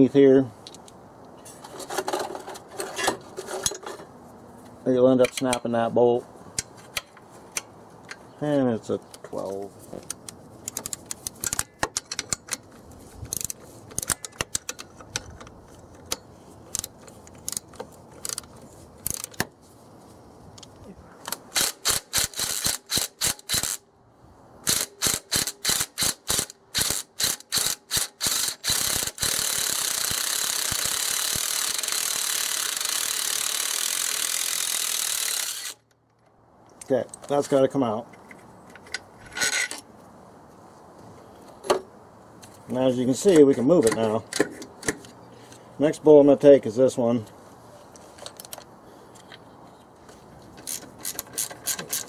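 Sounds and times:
socket ratchet clicking: 24.7 - 35.8.

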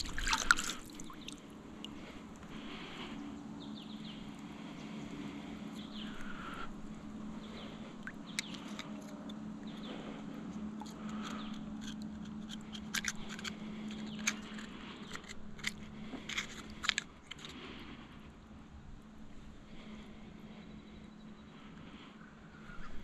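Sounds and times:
knife scraping oyster shell: 8.3 - 9.4, 10.8 - 17.6.

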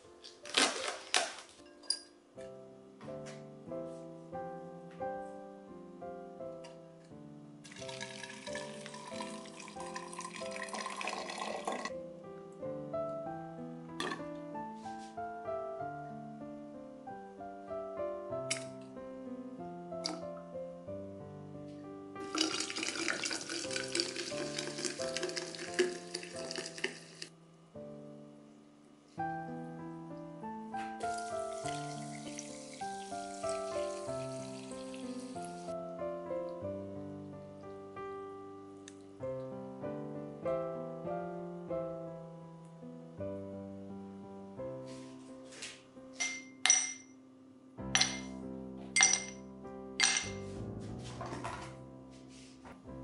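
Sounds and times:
gentle piano music: 0.0 - 53.0
bubbles fizzing: 7.7 - 11.9, 22.3 - 27.3
liquid pouring into a glass: 7.7 - 11.9, 22.3 - 27.3, 31.1 - 35.4.

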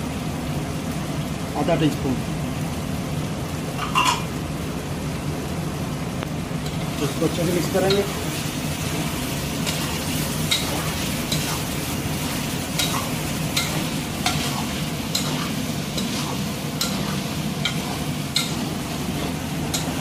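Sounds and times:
food sizzling in metal pot: 3.6 - 20.0
metal spatula scraping pot: 12.8 - 19.9.

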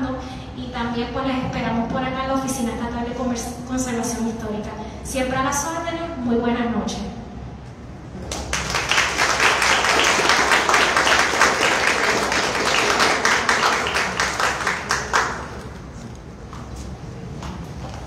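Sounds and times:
audience applauding: 8.2 - 15.8.

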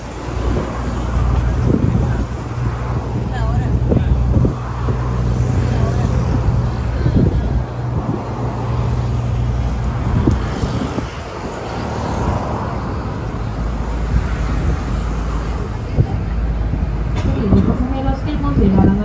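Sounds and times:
bus engine rumbling: 0.0 - 19.0
road traffic noise: 0.0 - 19.0.

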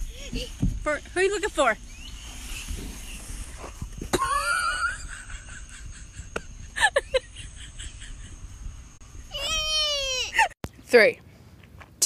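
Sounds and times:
toddler squealing: 9.3 - 10.5.

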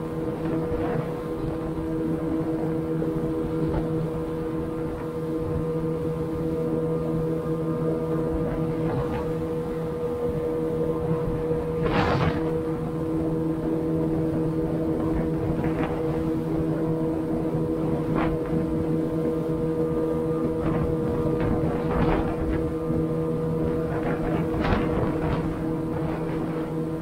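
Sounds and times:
outboard motor humming: 0.0 - 27.0
wind noise on microphone: 0.0 - 27.0
brief swishes: 11.8 - 12.6.

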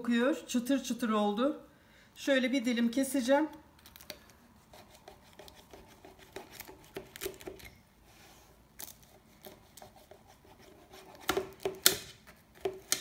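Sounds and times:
knife cutting crisp pastry crust: 4.0 - 7.7, 8.8 - 13.0.

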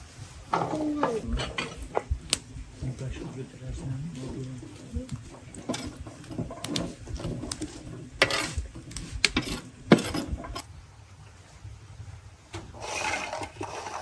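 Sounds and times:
dishes and utensils clinking: 0.5 - 2.2.

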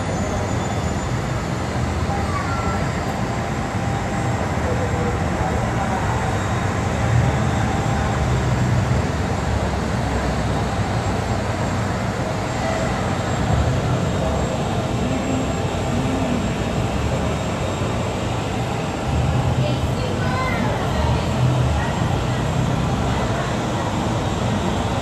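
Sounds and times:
jet engines rumbling: 0.0 - 25.0.

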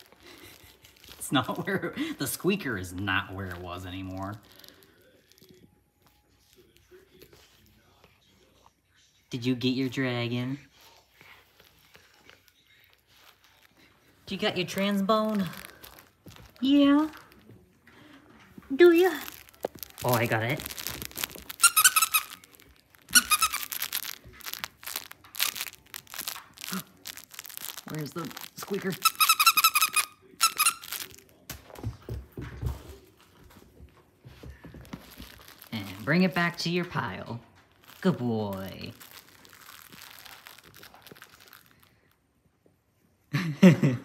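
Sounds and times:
crinkling and rustling: 0.0 - 8.3, 10.8 - 42.8
squeaky toy squeaking: 19.2 - 31.2.

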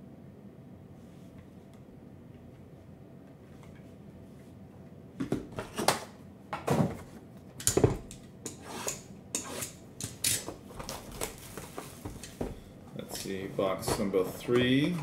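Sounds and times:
plastic shrink-wrap crinkling and tearing: 10.8 - 12.4
cardboard boxes knocking and sliding: 13.4 - 15.0.

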